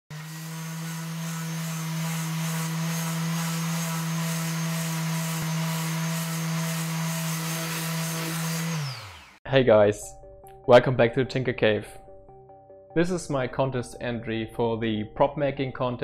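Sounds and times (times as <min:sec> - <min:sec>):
electric sander humming: 0:00.1 - 0:09.4.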